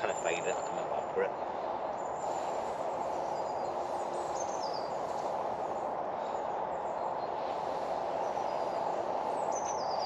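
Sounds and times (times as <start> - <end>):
small bird chirping: 1.9 - 5.3, 8.2 - 10.0.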